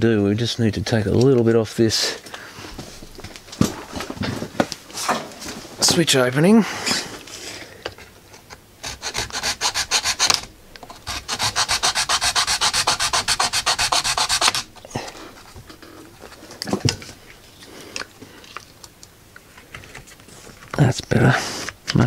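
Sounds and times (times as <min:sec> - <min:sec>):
hand file rasping on plastic: 0:08.8 - 0:14.7.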